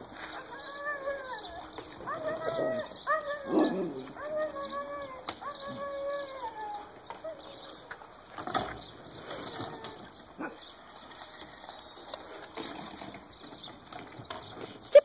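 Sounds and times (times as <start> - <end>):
dogs moving on dirt: 0.0 - 15.0
dog whining faintly: 0.2 - 7.9.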